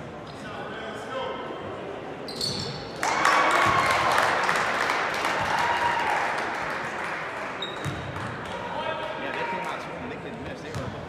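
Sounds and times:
crowd cheering and applauding: 0:03.0 - 0:07.6.

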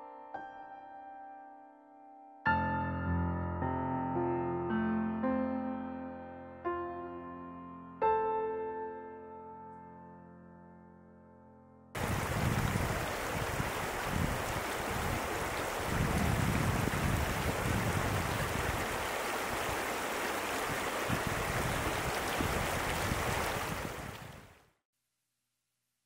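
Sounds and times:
river running over pebbles: 0:12.0 - 0:24.6.

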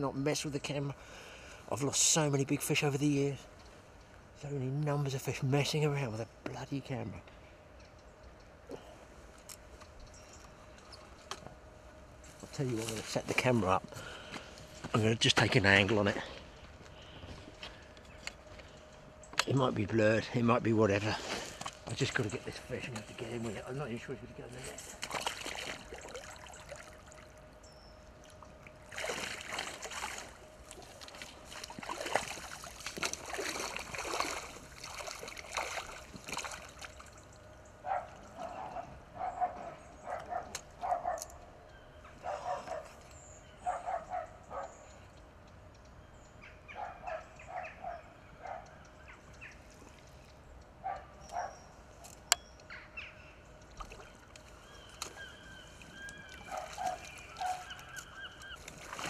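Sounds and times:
water splashing and sloshing: 0:20.9 - 0:38.4, 0:53.5 - 0:59.0.

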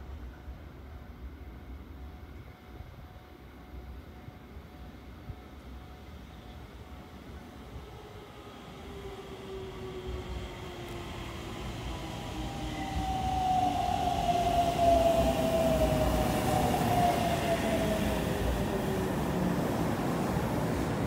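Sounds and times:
train braking: 0:06.0 - 0:21.0
train wheel rumble: 0:06.8 - 0:21.0.

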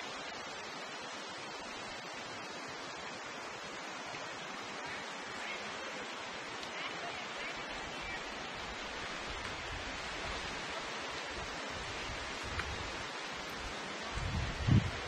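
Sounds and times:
river water rushing: 0:00.0 - 0:15.0
wind rumble on microphone: 0:08.6 - 0:15.0.

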